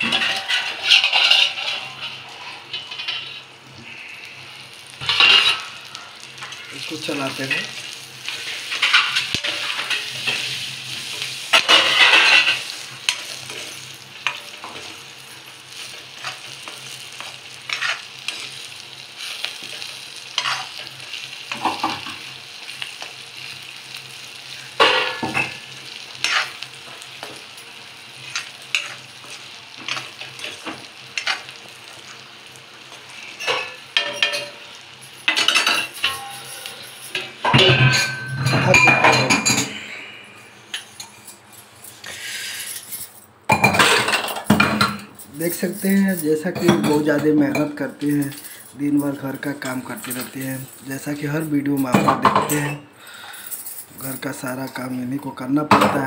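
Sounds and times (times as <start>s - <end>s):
metal spoon scraping a pan: 0.0s - 4.2s, 4.9s - 23.0s, 24.4s - 27.5s, 28.2s - 32.1s, 32.9s - 42.9s
food sizzling in oil: 0.0s - 56.0s.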